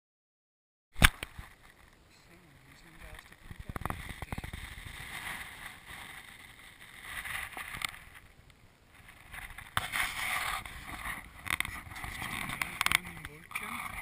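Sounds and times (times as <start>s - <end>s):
wind buffeting microphone: 2.8s - 8.4s.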